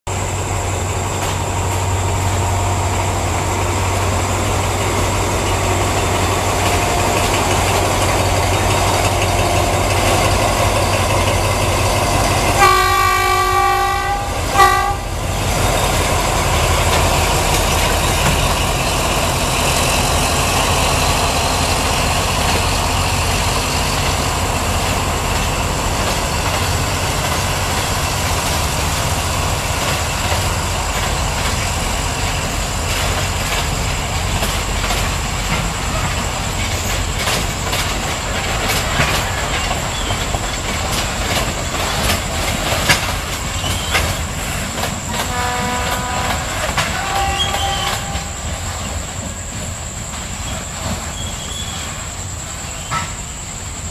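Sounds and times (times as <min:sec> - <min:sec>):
diesel locomotive drone: 0:00.1 - 0:53.9
train wagons rolling: 0:00.1 - 0:53.9
train horn blasts: 0:12.5 - 0:15.2, 0:45.1 - 0:48.5.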